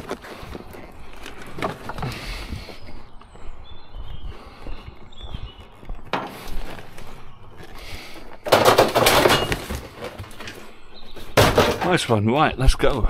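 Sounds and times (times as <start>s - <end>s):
scrap clattering: 8.4s - 10.6s, 11.4s - 12.1s.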